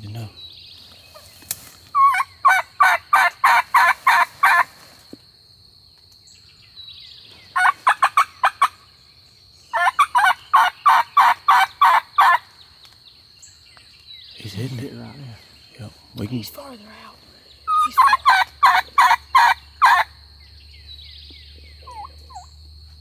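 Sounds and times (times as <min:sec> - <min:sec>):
turkey call yelps: 0:01.9 - 0:04.7, 0:07.6 - 0:08.8, 0:09.7 - 0:12.4, 0:17.7 - 0:20.1, 0:21.8 - 0:22.5.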